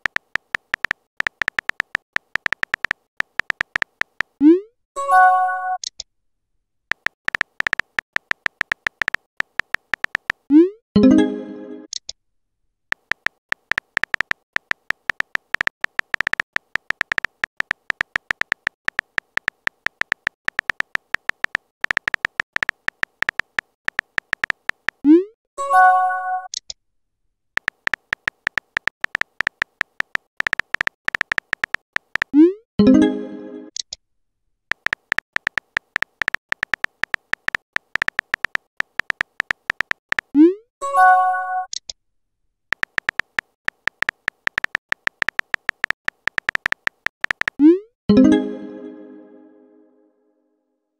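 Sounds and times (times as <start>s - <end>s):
keystroke clicks: 0.0s - 4.5s, 6.9s - 10.6s, 12.9s - 25.2s, 27.6s - 32.5s, 34.7s - 40.5s, 42.7s - 47.8s.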